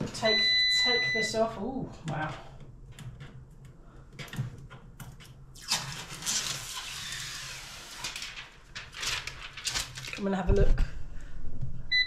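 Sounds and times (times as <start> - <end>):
plastic film peeling: 5.6 - 10.3
plastic film crinkling: 5.7 - 10.5.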